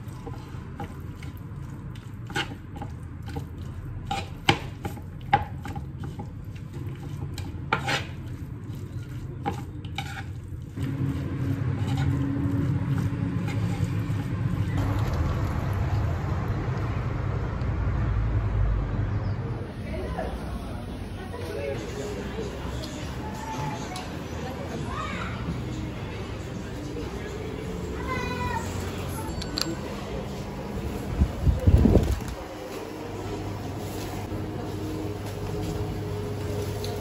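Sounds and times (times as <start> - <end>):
metal spoon scraping a wooden bowl: 6.9 - 14.4.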